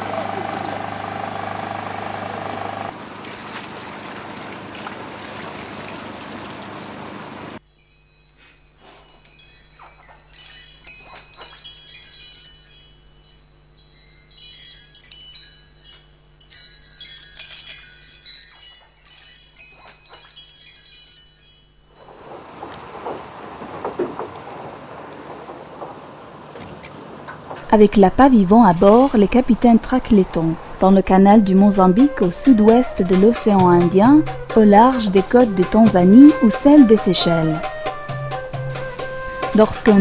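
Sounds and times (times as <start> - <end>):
boat engine hum: 0.0 - 7.6, 21.9 - 37.7
water noise: 2.9 - 32.6
tinkling chimes: 7.6 - 22.3.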